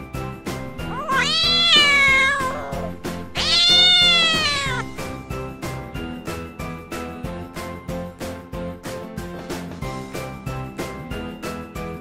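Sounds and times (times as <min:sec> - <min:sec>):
cat meowing: 0:00.7 - 0:05.1.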